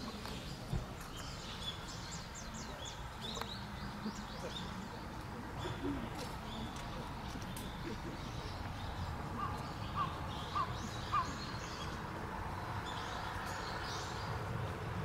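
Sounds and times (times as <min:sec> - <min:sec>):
outdoor background noise: 0:00.0 - 0:15.0
bird calling: 0:05.5 - 0:12.0.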